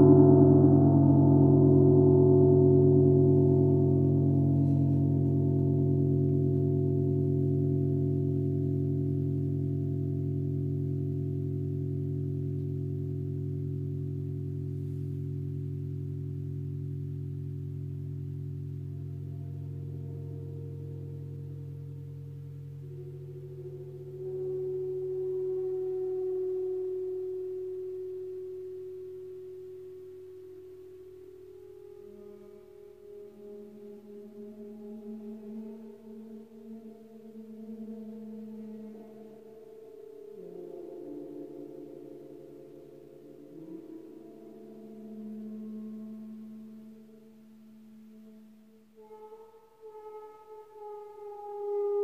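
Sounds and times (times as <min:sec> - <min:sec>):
gong hum: 0:00.0 - 0:26.1.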